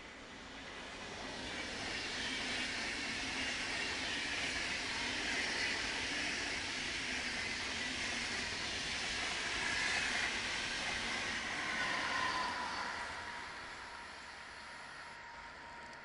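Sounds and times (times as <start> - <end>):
passenger train passing: 0.0 - 16.0.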